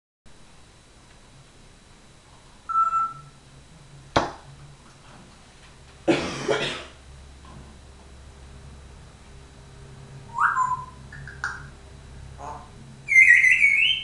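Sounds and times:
parrot whistling: 2.7s - 3.3s, 10.3s - 11.7s, 12.4s - 14.0s.

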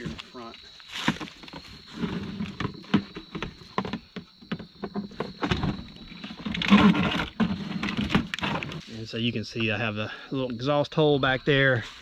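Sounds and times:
plastic scraping and rustling: 0.0s - 9.1s.

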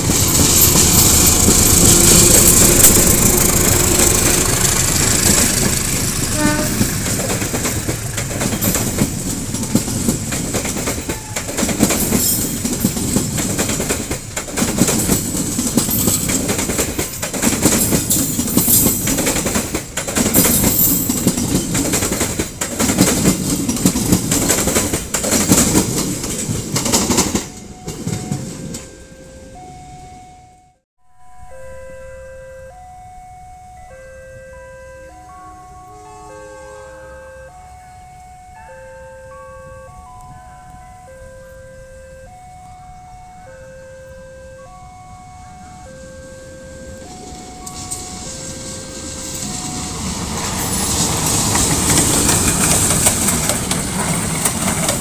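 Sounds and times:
train wheels clacking on rails: 0.0s - 28.9s, 47.1s - 55.0s
diesel locomotive passing: 0.0s - 55.0s.

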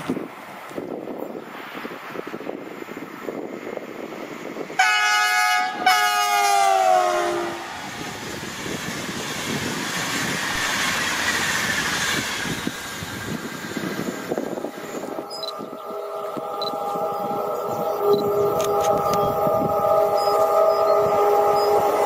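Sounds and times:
train horn blasts: 4.8s - 7.9s, 14.7s - 22.0s
train wheels rolling on rails: 6.5s - 22.0s.

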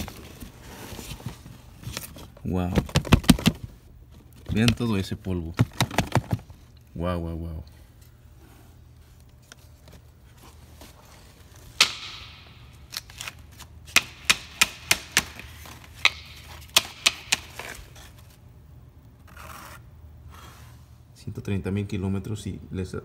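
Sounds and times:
hard knocks of filter handling: 11.8s - 12.5s.

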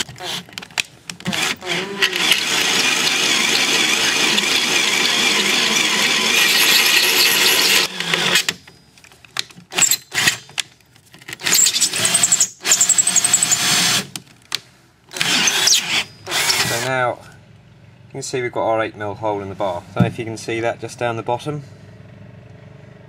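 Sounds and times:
power drill drilling through metal: 1.3s - 8.7s, 11.4s - 14.1s, 15.1s - 16.9s.

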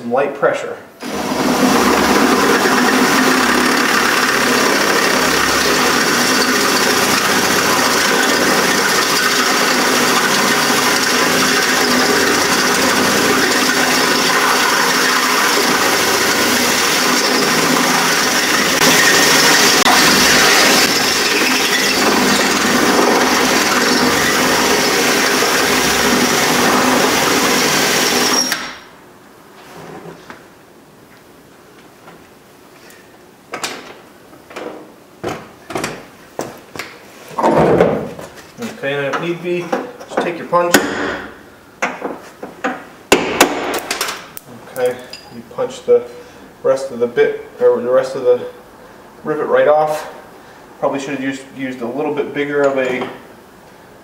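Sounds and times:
cordless drill drilling metal: 1.0s - 28.8s.

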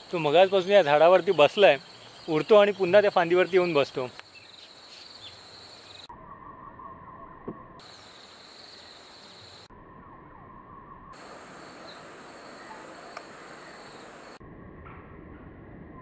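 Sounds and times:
insects droning: 0.0s - 14.4s.

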